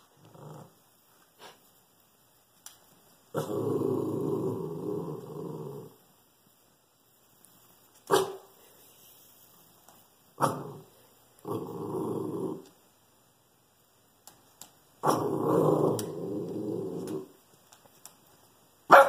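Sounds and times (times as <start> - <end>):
dog growling: 0.0 - 0.8, 3.3 - 6.0, 10.4 - 12.8, 15.0 - 17.4
dog barking sharply: 8.1 - 8.5.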